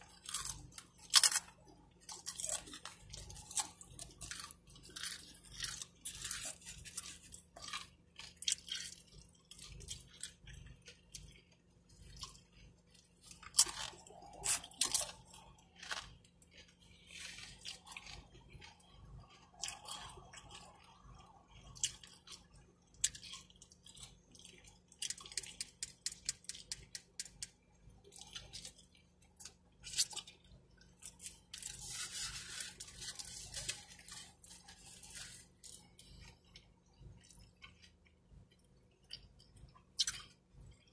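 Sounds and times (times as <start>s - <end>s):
person chewing food: 0.0s - 40.9s
wrapper rustle: 31.5s - 35.8s.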